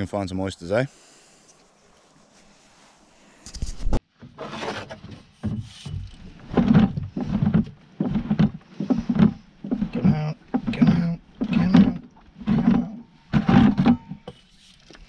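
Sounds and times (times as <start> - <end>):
paddle knocking plastic hull: 5.4 - 14.2.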